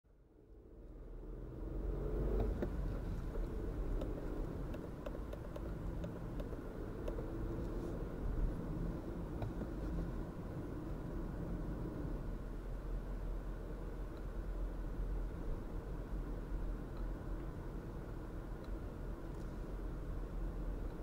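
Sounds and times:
car engine accelerating: 0.5 - 12.5
light ticks: 2.3 - 8.5, 9.3 - 10.1, 13.9 - 14.5, 16.8 - 17.6, 18.6 - 19.7, 20.6 - 21.0.

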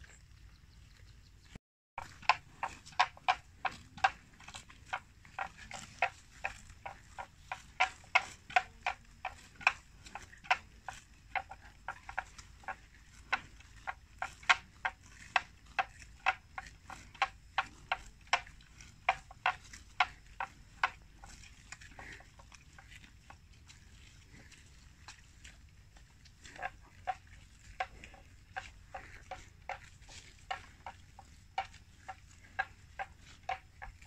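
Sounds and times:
water buffalo tearing grass: 2.0 - 34.0.

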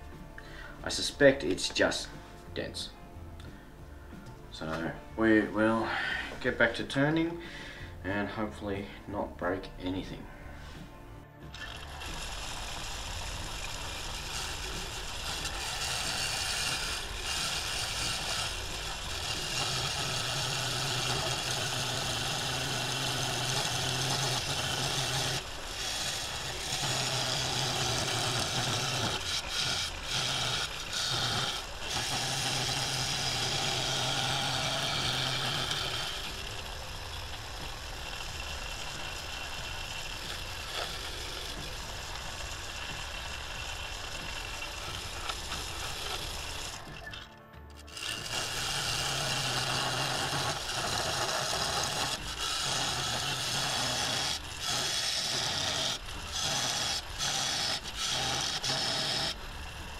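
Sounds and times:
lathe motor low hum: 10.7 - 59.9
lathe gouge cutting wood hiss: 11.5 - 46.9, 47.9 - 59.9.

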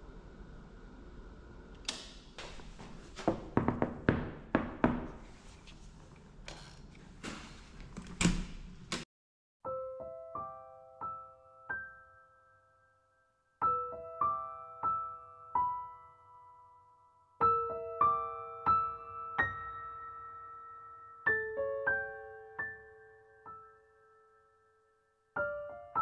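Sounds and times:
slow gentle piano music: 9.6 - 26.0.

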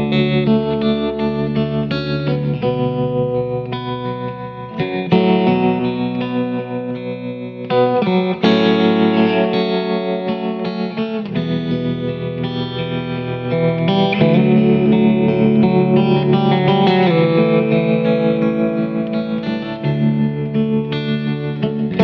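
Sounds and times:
guitar background music: 0.0 - 22.0.

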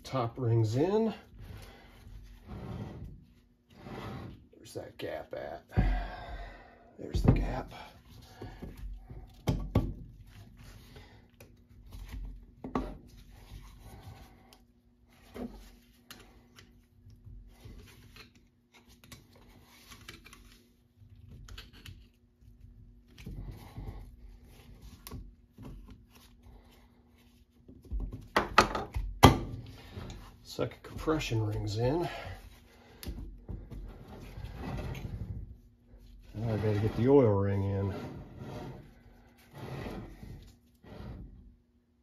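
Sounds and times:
soft scraping: 33.8 - 41.4.

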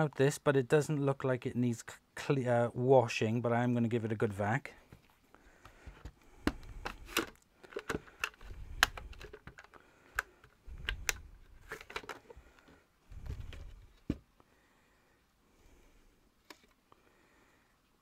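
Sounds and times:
plastic clicks and knocks: 5.6 - 14.2.

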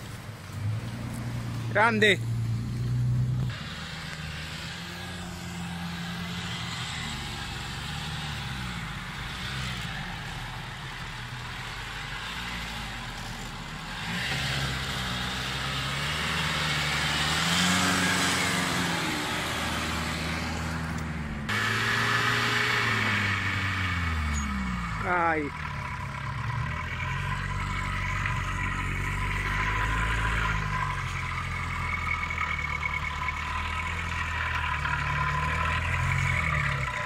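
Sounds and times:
engine revving under load: 0.5 - 37.0.

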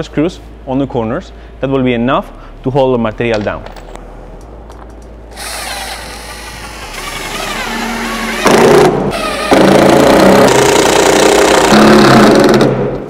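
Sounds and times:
cordless drill driving screws: 5.3 - 11.8.

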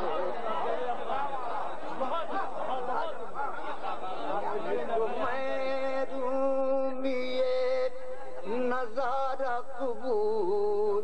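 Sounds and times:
man singing: 5.0 - 11.0.

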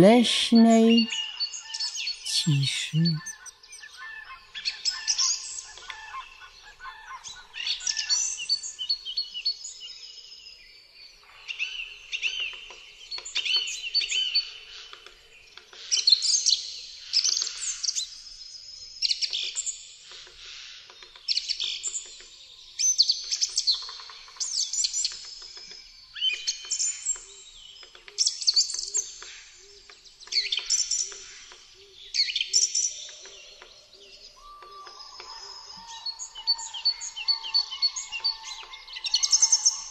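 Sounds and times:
songbirds singing: 21.1 - 39.9.

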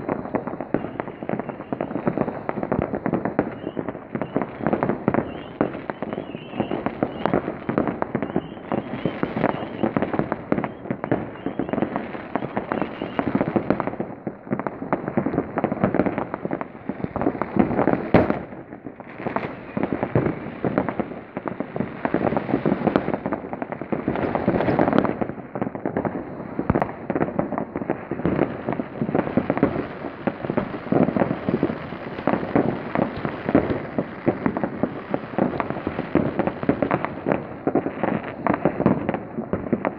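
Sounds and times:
fireworks crackling and popping: 0.0 - 39.9
sharp loud firework bang: 17.1 - 21.0.

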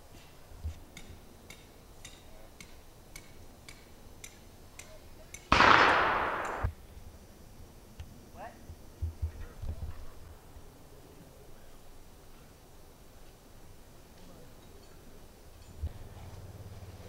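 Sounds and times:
loud blast: 5.5 - 6.7.

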